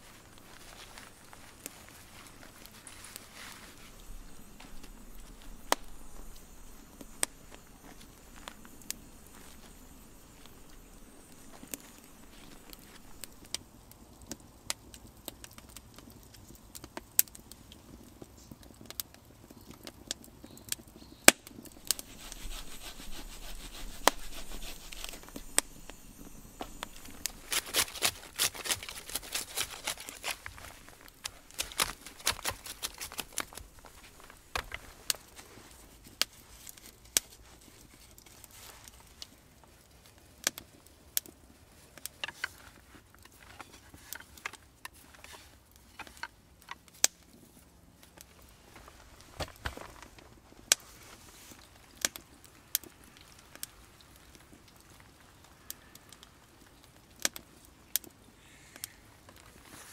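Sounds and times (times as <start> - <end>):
wood fire crackling: 0.0 - 59.9
sticks snapping: 21.3 - 35.3.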